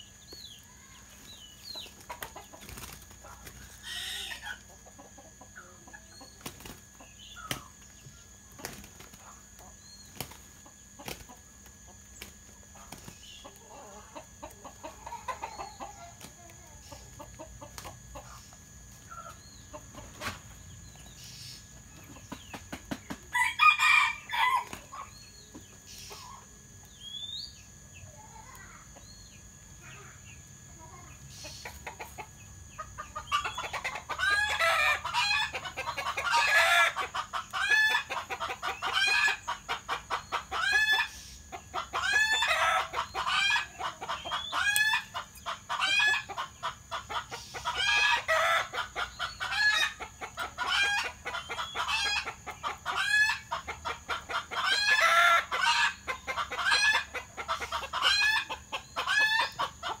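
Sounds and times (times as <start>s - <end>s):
chickens clucking: 0.0s - 60.0s.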